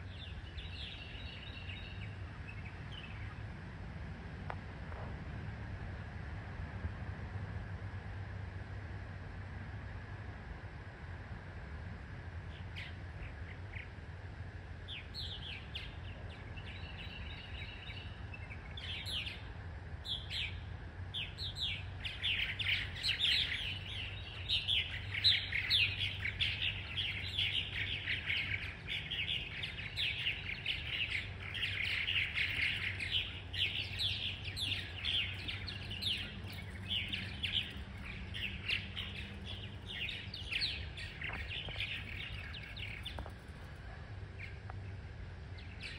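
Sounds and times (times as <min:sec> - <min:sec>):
birds chirping and chattering: 0:00.0 - 0:03.6, 0:12.5 - 0:14.2, 0:14.8 - 0:45.9.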